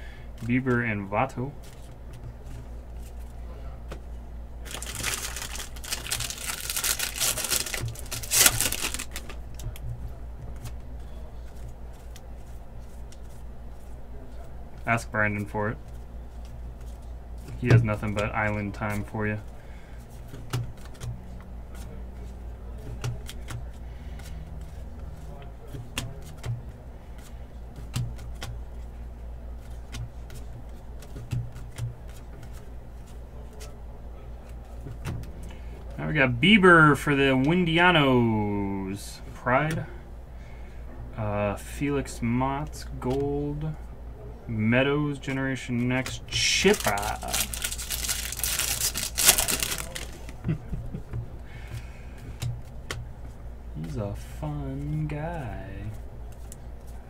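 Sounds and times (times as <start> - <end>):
steady low hum: 0.0 - 57.0
card wrappers crackling: 4.6 - 9.7, 45.8 - 50.5
cards clicking and tapping: 4.7 - 9.8, 20.3 - 21.2.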